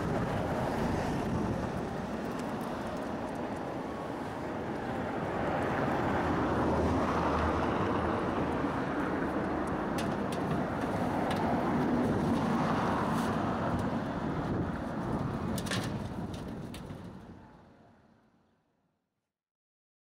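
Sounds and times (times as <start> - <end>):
passing vehicles: 0.0 - 18.2
steady outdoor background: 0.0 - 19.0.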